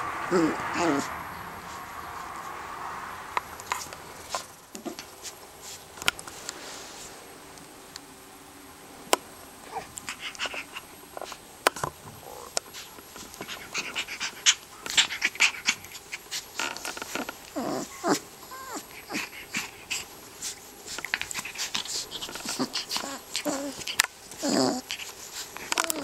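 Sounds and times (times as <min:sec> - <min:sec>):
puppy play growls: 0:00.0 - 0:05.1, 0:09.6 - 0:26.0
puppy whimpering and whining: 0:00.3 - 0:01.2, 0:17.2 - 0:20.1, 0:22.0 - 0:26.0
puppy licking clicks and snuffles: 0:19.1 - 0:26.0.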